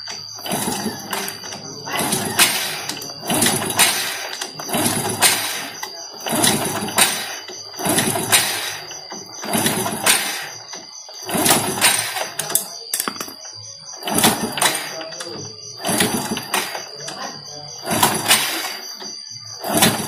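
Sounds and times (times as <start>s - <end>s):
motorcycle being kick-started: 0.0s - 20.0s.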